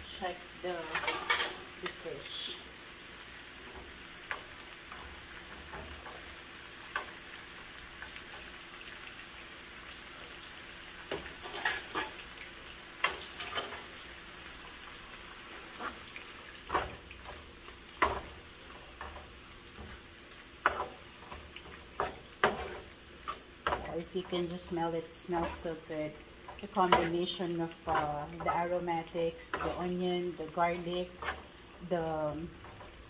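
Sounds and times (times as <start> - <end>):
oil sizzling: 0.0 - 33.0
utensil scraping a pan: 15.5 - 16.1, 20.6 - 31.7.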